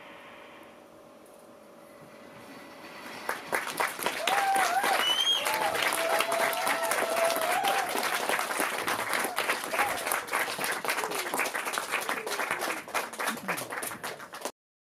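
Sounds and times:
audience applauding: 0:03.1 - 0:14.6.

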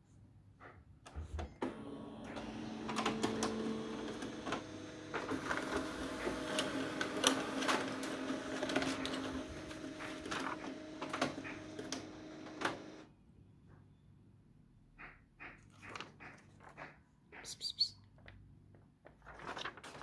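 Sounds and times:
photocopier mechanism clicks and clatters: 0:01.6 - 0:13.0
photocopier motor hum: 0:01.6 - 0:13.1.

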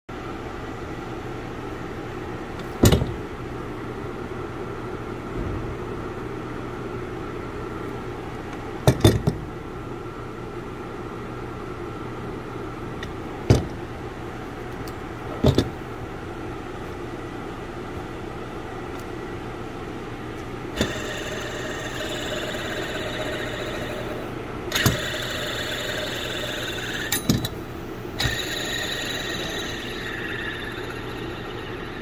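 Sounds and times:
pulley bearing spinning with hum: 0:12.6 - 0:32.0.

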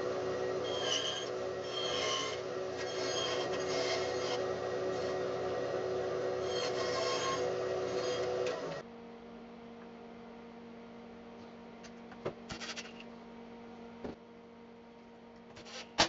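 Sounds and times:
low electrical hum: 0:00.0 - 0:16.0
bandsaw cutting wood: 0:00.6 - 0:05.4, 0:06.4 - 0:08.8.

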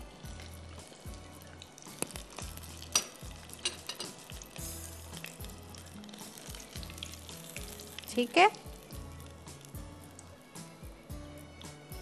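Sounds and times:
chicken deep-frying in oil: 0:00.0 - 0:11.0
soft background music: 0:00.0 - 0:12.0.

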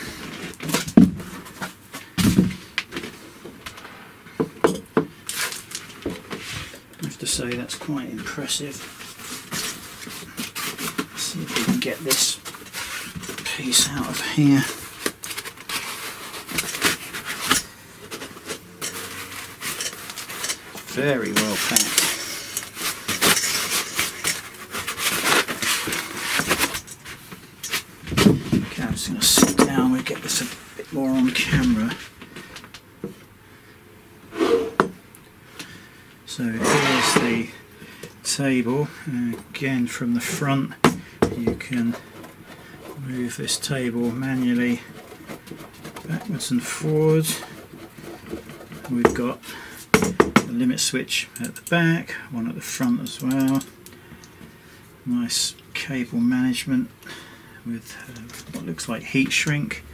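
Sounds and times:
foam packing rubbing and scraping: 0:08.3 - 0:27.2, 0:36.5 - 0:37.5, 0:41.6 - 0:49.0.

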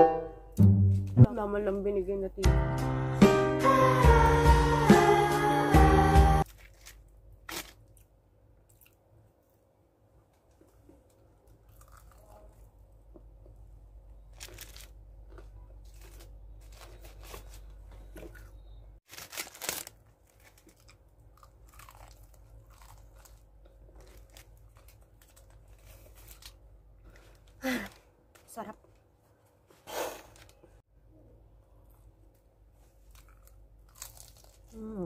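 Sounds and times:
crunching fried chicken: 0:06.4 - 0:09.5, 0:10.6 - 0:13.2, 0:14.2 - 0:27.6, 0:32.8 - 0:34.8.

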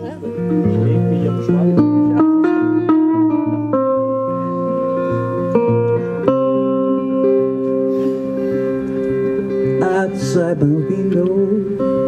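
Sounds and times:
resonator guitar playing: 0:00.0 - 0:12.0.

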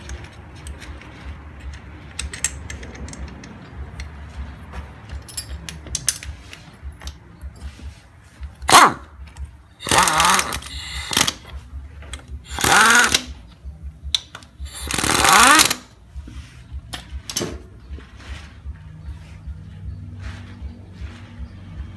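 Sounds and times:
motorcycle engine revving: 0:12.5 - 0:13.4, 0:14.6 - 0:16.0.

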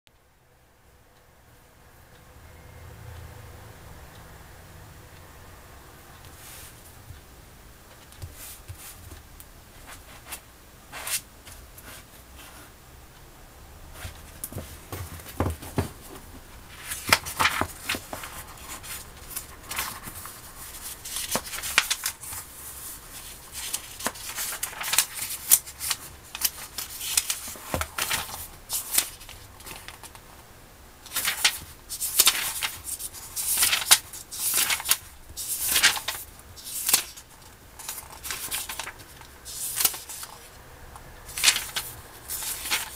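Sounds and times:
book pages rustling and turning: 0:06.2 - 0:07.2, 0:07.9 - 0:12.7, 0:13.9 - 0:30.4, 0:31.1 - 0:42.9.

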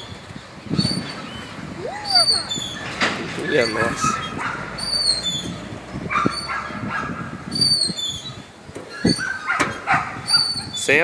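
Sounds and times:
dog barking: 0:04.0 - 0:04.7, 0:06.1 - 0:07.3, 0:09.3 - 0:10.2.

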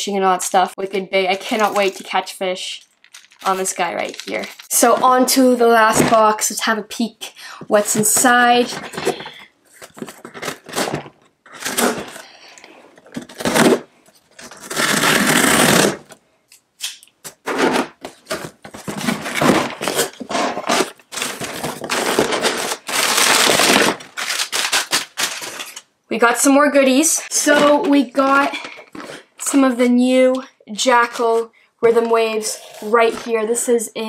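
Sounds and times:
packing paper rustling: 0:02.9 - 0:05.2, 0:07.9 - 0:12.4, 0:17.4 - 0:25.8.

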